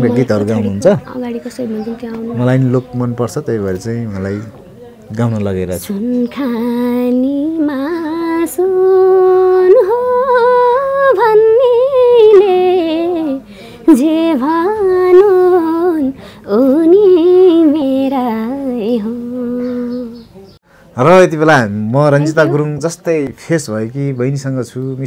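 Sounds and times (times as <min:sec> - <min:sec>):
woman singing unaccompanied: 0:01.1 - 0:02.4, 0:05.8 - 0:20.4.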